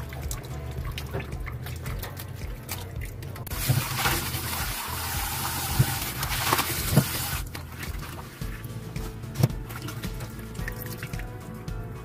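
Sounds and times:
kitchen tap running: 0:00.0 - 0:08.4
seaweed splashing in water: 0:00.0 - 0:08.5.

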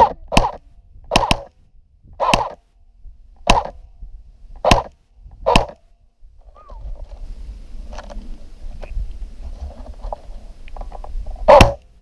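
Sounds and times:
airsoft rifle shots: 0:00.0 - 0:01.5, 0:02.2 - 0:02.6, 0:03.4 - 0:03.8, 0:04.6 - 0:05.8, 0:11.5 - 0:11.8.

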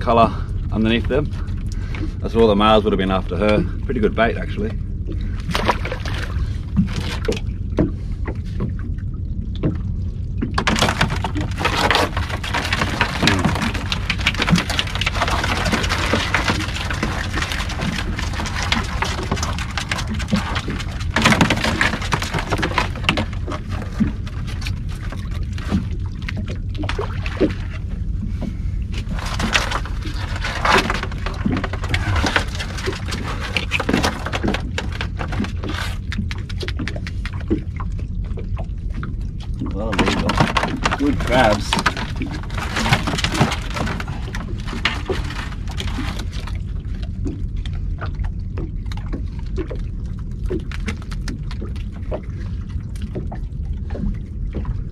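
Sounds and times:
water and wind noise: 0:00.0 - 0:54.9
knocks and rattles on deck: 0:10.4 - 0:37.7, 0:39.8 - 0:46.6.

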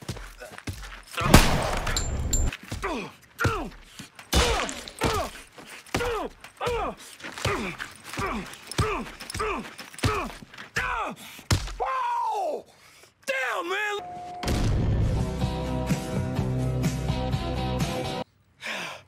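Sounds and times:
man grunting: 0:02.8 - 0:03.8.

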